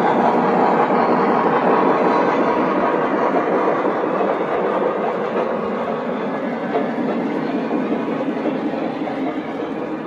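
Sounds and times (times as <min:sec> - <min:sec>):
model train wheels rumbling: 0:00.0 - 0:10.0.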